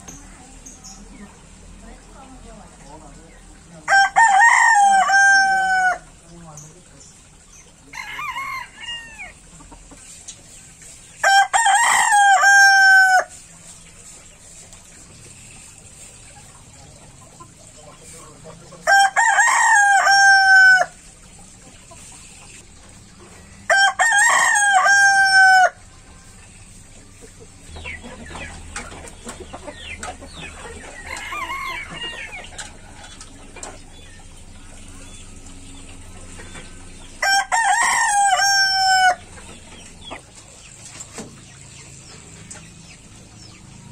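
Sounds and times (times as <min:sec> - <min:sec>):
rooster crowing: 0:03.9 - 0:06.1, 0:07.9 - 0:09.4, 0:11.2 - 0:13.3, 0:18.8 - 0:21.0, 0:23.6 - 0:25.9, 0:30.9 - 0:32.4, 0:37.2 - 0:39.3.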